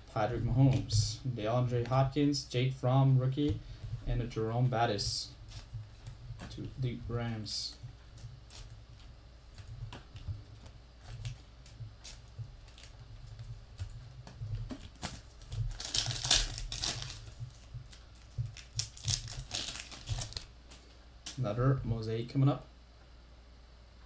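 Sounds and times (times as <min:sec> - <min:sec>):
foil wrapper crinkling and tearing: 0:11.0 - 0:14.0, 0:14.6 - 0:21.4.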